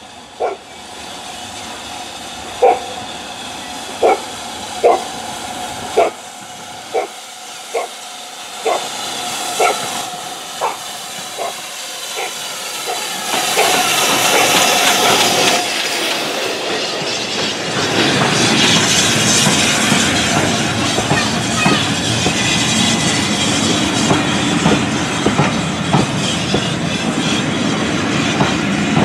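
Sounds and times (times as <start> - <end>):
steam hissing: 0.0 - 29.0
steam train passing: 0.0 - 29.0
dog barking: 0.4 - 0.6, 2.6 - 3.0, 4.0 - 5.1, 6.0 - 6.2, 6.9 - 7.1, 7.7 - 7.9, 8.6 - 8.9, 9.6 - 9.9, 10.6 - 10.8, 11.4 - 11.6, 12.2 - 15.2
wheels clacking on rail joints: 8.6 - 22.5.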